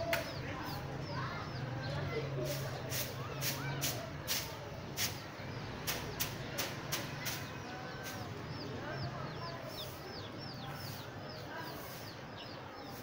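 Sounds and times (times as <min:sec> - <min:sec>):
sharp snaps: 0:00.0 - 0:00.4, 0:05.8 - 0:07.4
bird chirping: 0:00.0 - 0:03.1, 0:05.0 - 0:13.0.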